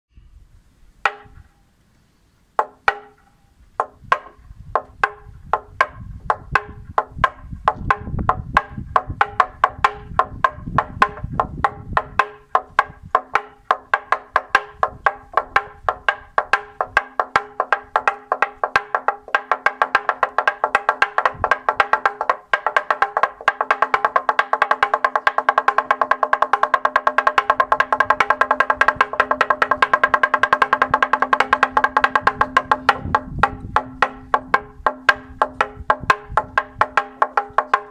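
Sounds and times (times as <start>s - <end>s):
mallet beating wooden plank: 1.0s - 1.5s, 2.6s - 37.9s.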